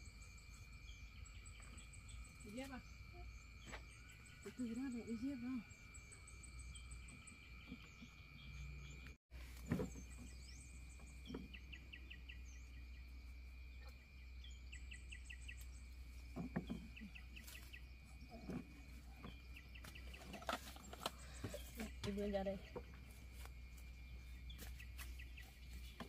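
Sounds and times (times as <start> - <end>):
high insect drone: 0.0 - 9.0.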